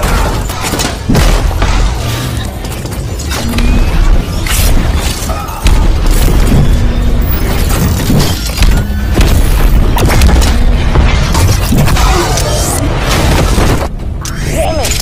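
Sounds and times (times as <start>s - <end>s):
dramatic background music: 0.0s - 15.0s.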